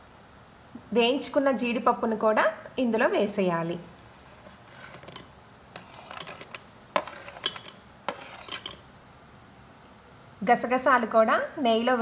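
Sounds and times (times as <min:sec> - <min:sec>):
metal spoon scraping a plate: 0:04.3 - 0:08.8.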